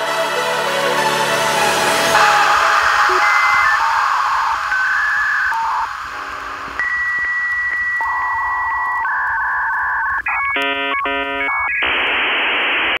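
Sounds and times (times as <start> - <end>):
electronic beeping music: 2.1 - 12.0.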